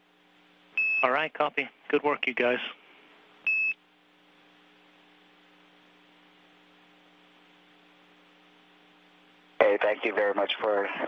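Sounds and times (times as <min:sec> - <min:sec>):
faint radio hum and hiss: 0:00.0 - 0:11.0
person speaking over radio: 0:09.6 - 0:11.0.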